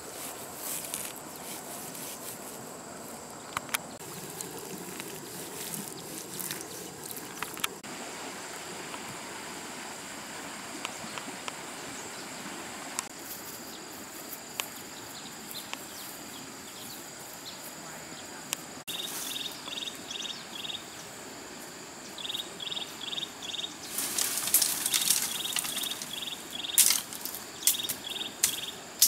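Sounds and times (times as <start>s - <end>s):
steady background noise: 0.0s - 11.8s
insects trilling: 0.0s - 29.0s.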